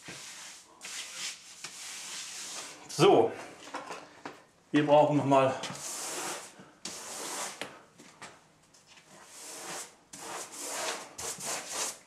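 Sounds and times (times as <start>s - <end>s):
wallpaper rubbing against wall: 0.0s - 2.9s, 5.7s - 7.6s, 9.1s - 12.0s.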